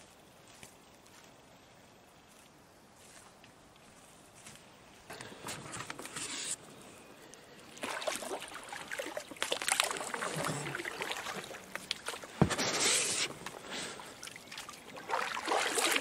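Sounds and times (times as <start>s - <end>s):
water sloshing: 7.7s - 16.0s
boat thump: 12.3s - 13.0s.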